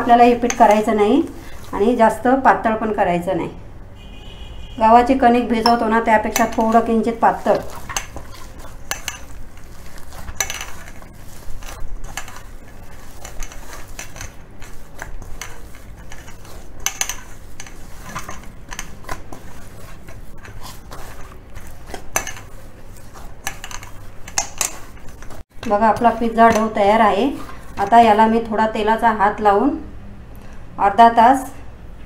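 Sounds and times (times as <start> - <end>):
hands kneading dough: 0.0 - 3.1, 5.4 - 29.0
metal bowl knocking and scraping: 0.2 - 0.9, 5.6 - 28.2.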